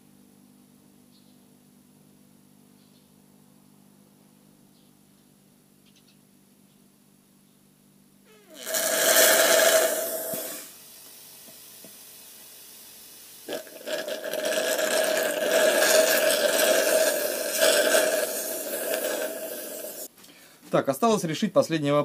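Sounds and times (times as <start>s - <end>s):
compressor sucking oil through tube: 8.5s - 20.1s
refrigerator compressor running: 13.4s - 20.0s.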